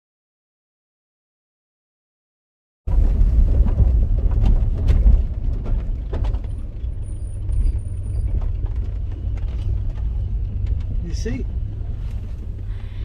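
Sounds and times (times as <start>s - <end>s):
engine and road rumble: 2.9s - 13.0s
clicks and rattles: 3.6s - 12.6s.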